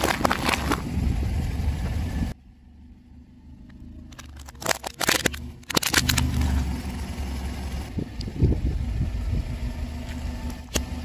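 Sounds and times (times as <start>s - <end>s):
cucumbers crunching under tyre: 0.0s - 1.2s, 4.1s - 6.7s
car engine running low: 0.0s - 11.0s.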